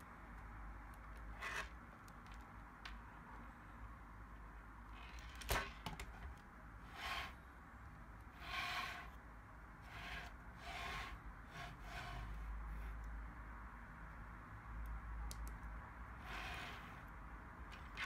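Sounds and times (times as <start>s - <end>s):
plastic parts scraping and rubbing: 1.1s - 2.4s, 4.9s - 7.4s, 8.4s - 9.2s, 9.8s - 13.1s, 16.2s - 17.1s, 17.7s - 18.0s.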